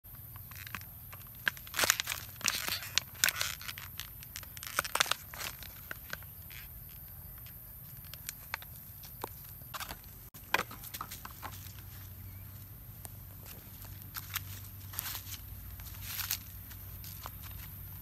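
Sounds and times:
plastic bag crinkling: 0:00.5 - 0:06.7.

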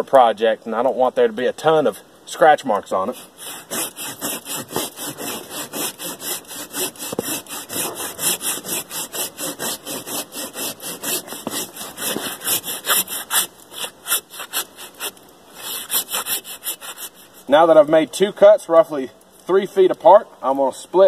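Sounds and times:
hand saw cutting log: 0:03.0 - 0:17.6.

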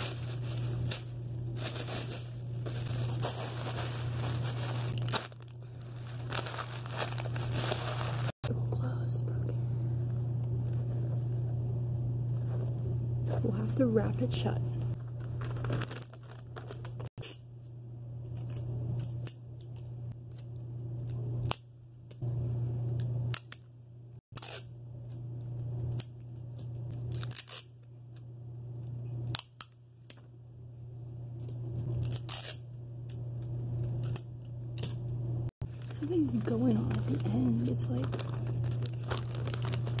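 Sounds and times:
sticky tape crackling: 0:00.0 - 0:08.4, 0:14.9 - 0:17.1, 0:35.7 - 0:40.0
steady low hum: 0:00.0 - 0:40.0.

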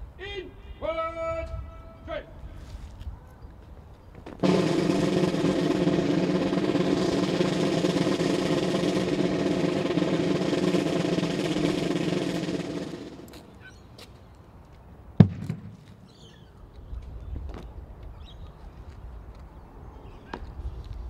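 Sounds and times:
drum roll: 0:04.4 - 0:13.3.

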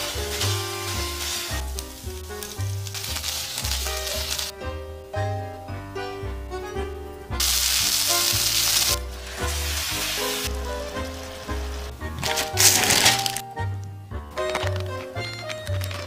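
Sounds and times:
food sizzling in a frying pan: 0:00.0 - 0:04.5, 0:07.4 - 0:11.8
background music with bass line: 0:00.0 - 0:16.0.

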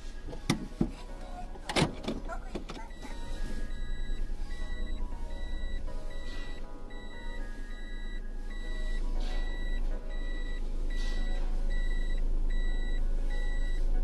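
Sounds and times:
car engine and tyres hum: 0:00.0 - 0:14.0
reverse warning beeps: 0:02.8 - 0:14.0.

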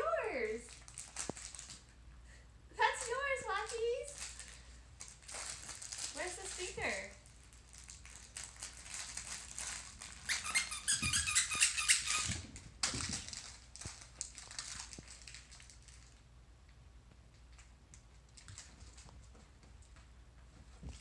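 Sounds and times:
dog toy squeaking: 0:10.2 - 0:12.4.

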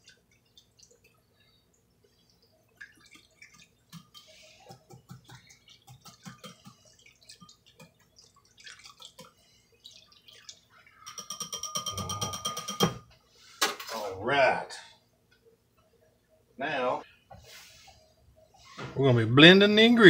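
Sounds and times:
wire whisk stirring milk: 0:03.2 - 0:13.0.

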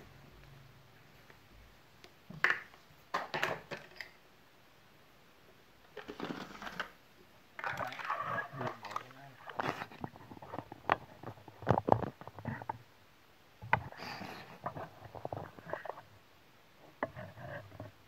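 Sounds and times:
plastic knocks on tiled floor: 0:02.3 - 0:04.0
rustling plastic clatter: 0:07.6 - 0:12.8.

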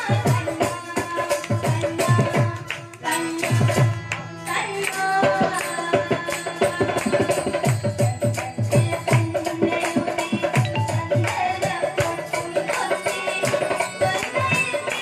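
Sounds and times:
harmonium tones: 0:00.0 - 0:09.5, 0:10.2 - 0:15.0
person singing: 0:08.8 - 0:15.0.

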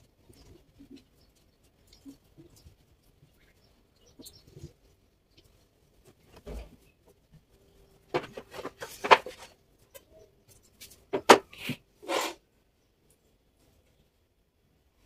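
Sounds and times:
wooden pieces knocking: 0:08.1 - 0:10.0, 0:10.8 - 0:11.6.

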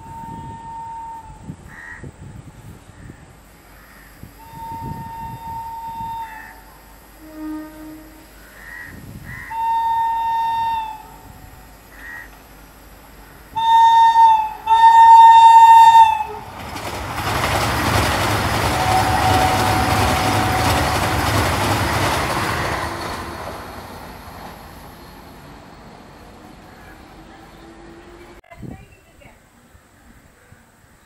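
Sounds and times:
train horn blasts: 0:00.0 - 0:01.4, 0:04.4 - 0:12.3, 0:13.6 - 0:16.5, 0:18.5 - 0:23.8
train rushing past: 0:09.5 - 0:28.4.

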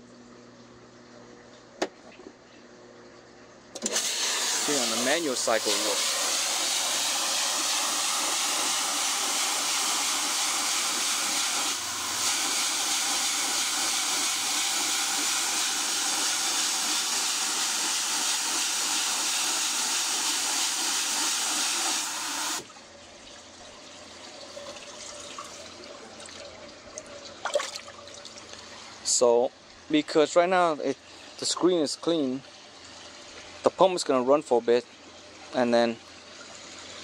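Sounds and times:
water spray hissing: 0:03.9 - 0:22.6
water trickling: 0:22.7 - 0:29.9.

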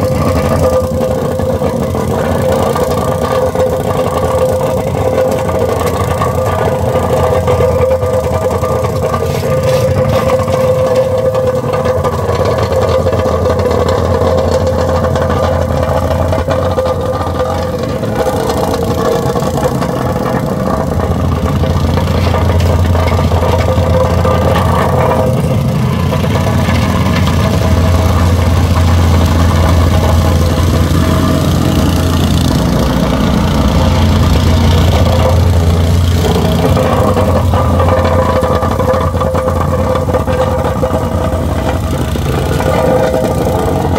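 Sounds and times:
plate compactor running: 0:00.0 - 0:43.9.

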